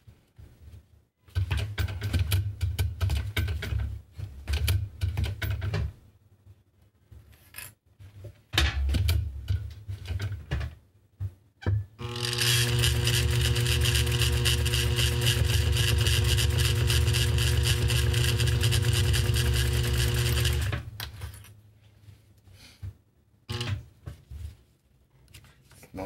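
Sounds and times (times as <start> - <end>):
sewing machine stitching: 12.0 - 20.9, 23.5 - 23.8.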